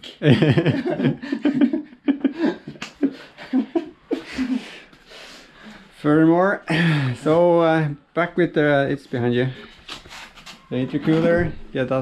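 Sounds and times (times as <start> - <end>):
man laughing: 0.1 - 4.8
man talking: 6.0 - 9.7, 10.7 - 12.0.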